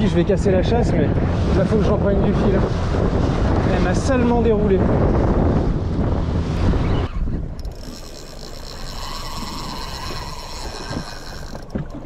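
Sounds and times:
outboard motor running: 0:00.0 - 0:12.0
fishing reel whirring: 0:06.6 - 0:12.0.

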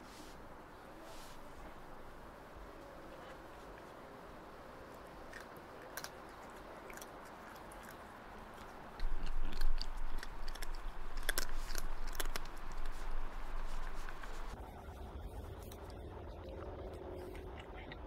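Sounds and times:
cat chewing snacks: 0:04.9 - 0:14.6.

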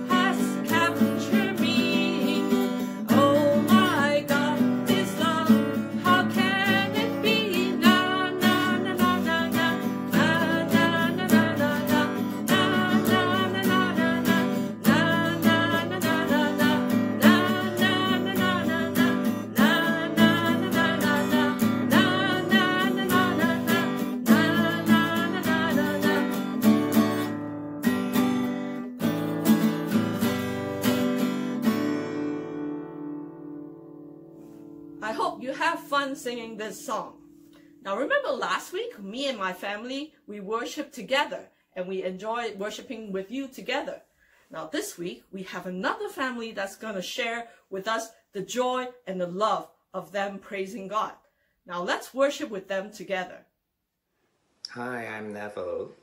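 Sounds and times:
woman singing: 0:00.0 - 0:27.4
acoustic guitar strumming: 0:00.0 - 0:38.6.

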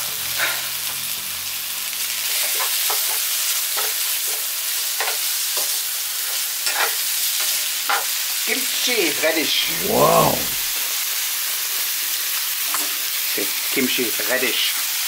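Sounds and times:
meat and onion sizzling in a pan: 0:00.0 - 0:09.4, 0:10.7 - 0:15.0.

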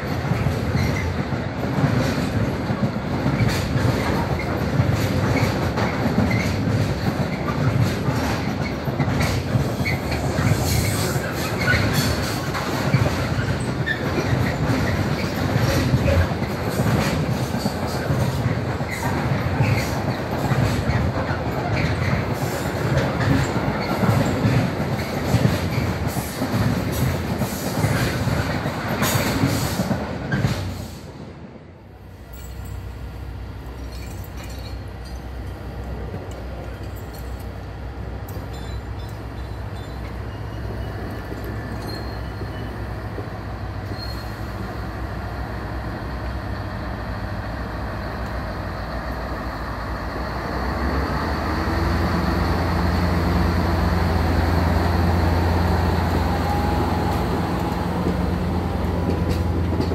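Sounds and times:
train wagons rolling on rails: 0:00.0 - 0:59.9.

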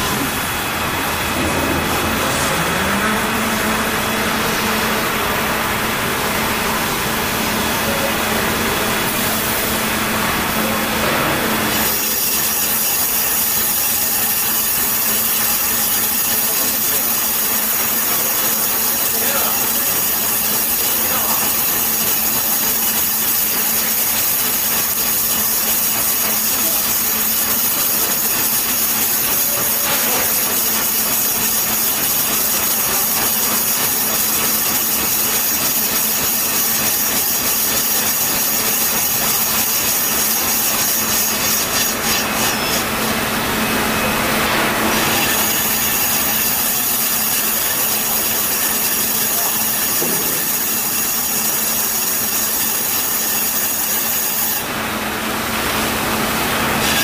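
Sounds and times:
machine hum and whine: 0:00.0 - 0:57.0
lathe tool cutting hiss: 0:11.7 - 0:43.1, 0:44.9 - 0:54.7, 0:56.8 - 0:57.0.

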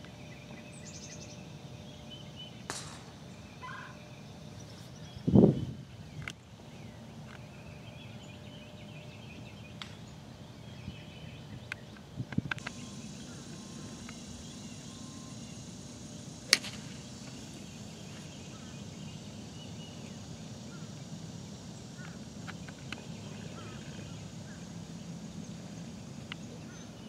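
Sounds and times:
low outdoor background: 0:00.0 - 0:27.0
golf club striking ball: 0:02.7 - 0:03.2, 0:16.5 - 0:17.6.

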